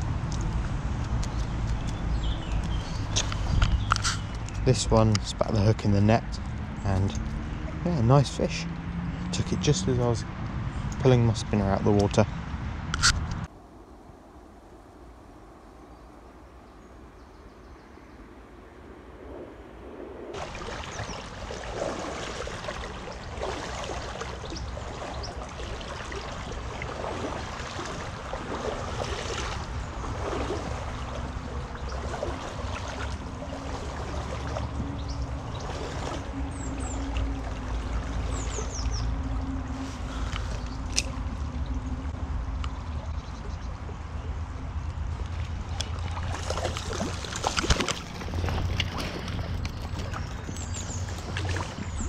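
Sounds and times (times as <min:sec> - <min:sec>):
river water rushing: 0:20.3 - 0:42.6, 0:45.0 - 0:52.0
bird chirps: 0:38.3 - 0:39.2, 0:49.6 - 0:52.0.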